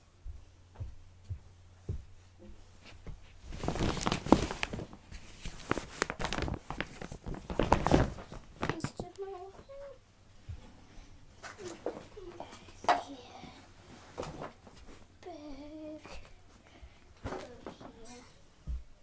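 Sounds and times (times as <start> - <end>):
footsteps: 0.2 - 12.9.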